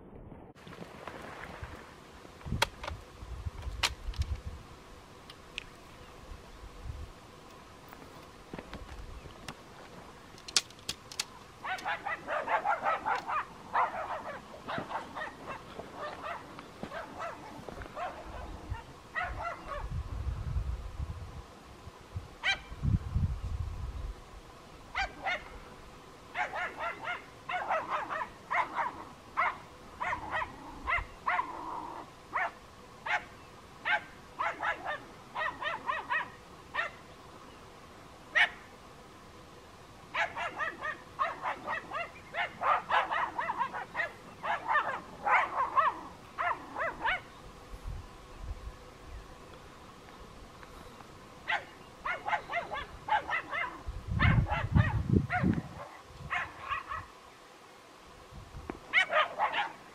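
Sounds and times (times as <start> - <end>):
small dogs yapping: 11.6 - 19.9, 24.9 - 25.6, 26.3 - 37.0, 38.3 - 38.7, 40.1 - 47.3, 51.4 - 57.1, 58.9 - 59.8.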